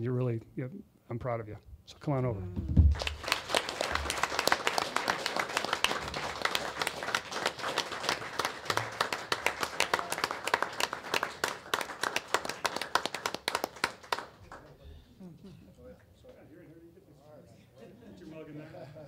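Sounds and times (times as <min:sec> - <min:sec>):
people clapping: 0:02.8 - 0:14.8.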